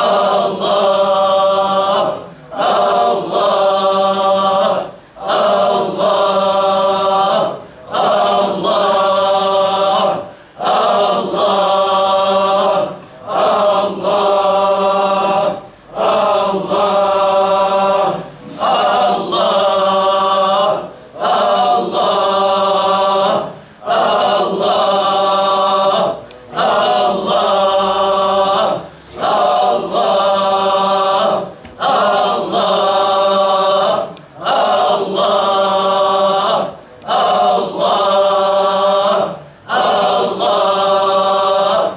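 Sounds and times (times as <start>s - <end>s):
group of men chanting: 0.0s - 41.9s.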